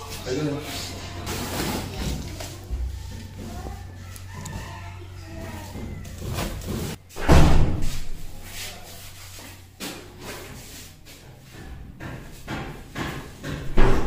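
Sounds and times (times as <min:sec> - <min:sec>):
heavy slam: 0:07.2 - 0:08.1.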